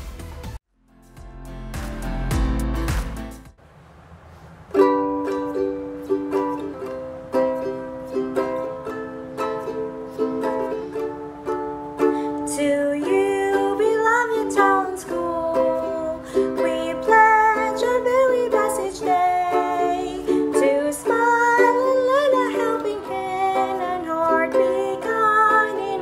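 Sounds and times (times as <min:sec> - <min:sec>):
ukulele strumming: 0:04.4 - 0:26.0
woman singing slow song: 0:12.3 - 0:26.0.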